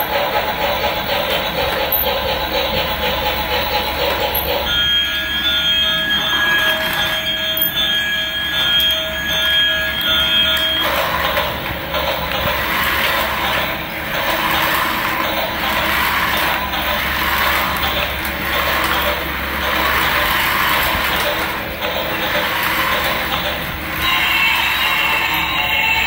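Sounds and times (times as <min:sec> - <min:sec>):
toy train electronic tones: 0:00.0 - 0:26.0
toy motors whirring: 0:06.1 - 0:26.0
plastic wheels rolling on tile: 0:10.0 - 0:25.4.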